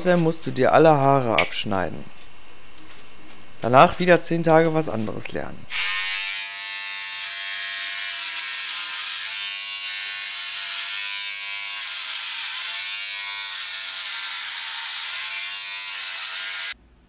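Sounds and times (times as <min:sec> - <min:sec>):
electric hair trimmer buzzing: 0:05.7 - 0:16.8.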